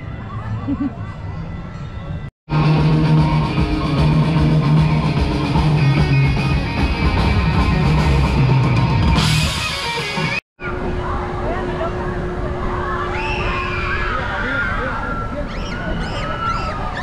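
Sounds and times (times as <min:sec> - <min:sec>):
bass line: 0:02.5 - 0:10.4
electric guitar: 0:02.5 - 0:10.4
live rock band playing: 0:02.5 - 0:10.4.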